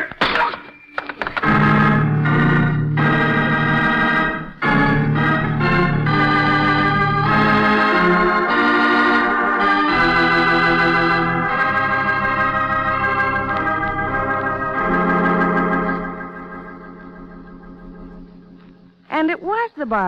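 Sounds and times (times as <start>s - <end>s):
organ chords: 0.0s - 20.0s.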